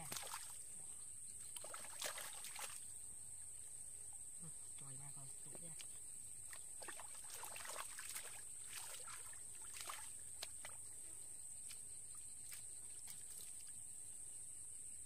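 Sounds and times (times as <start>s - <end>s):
hands splashing in muddy water: 0.0s - 0.6s, 1.5s - 3.0s, 5.6s - 11.0s, 11.6s - 13.8s
water dripping: 5.5s - 11.0s.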